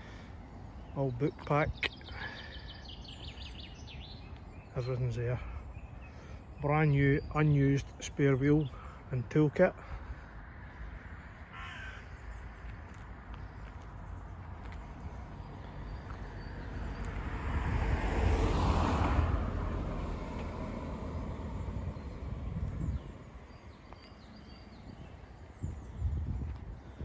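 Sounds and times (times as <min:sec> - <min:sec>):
car driving past: 0:15.4 - 0:23.0.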